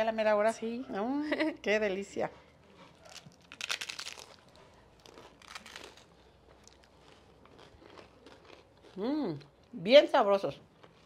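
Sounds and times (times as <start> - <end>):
faint chewing: 2.3 - 9.8, 10.5 - 11.0
crunching fried tacos: 2.8 - 9.8, 10.5 - 11.0.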